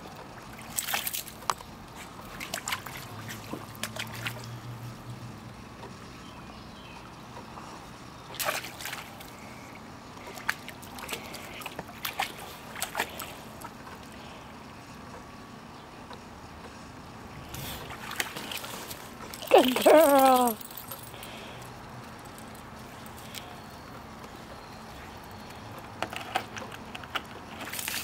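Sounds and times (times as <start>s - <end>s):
puppy splashing in water: 0.2s - 4.7s, 8.3s - 9.5s, 10.2s - 14.2s, 17.5s - 21.2s, 26.2s - 28.0s.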